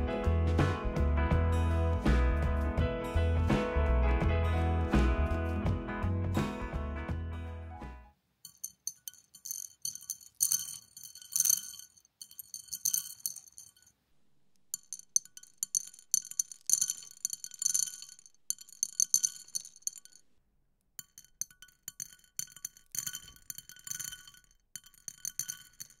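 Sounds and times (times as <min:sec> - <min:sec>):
dried beans scattering into bowl: 0:08.5 - 0:13.9, 0:14.7 - 0:20.2, 0:21.0 - 0:26.0.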